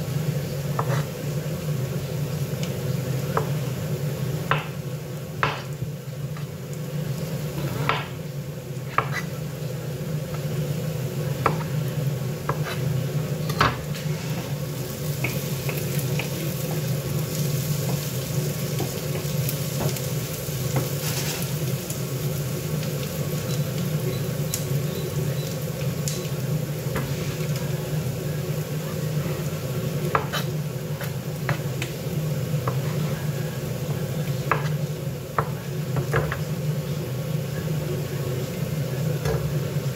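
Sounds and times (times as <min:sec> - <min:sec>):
knife tapping on cutting board: 0:04.5 - 0:04.7, 0:05.4 - 0:05.7, 0:34.5 - 0:34.7.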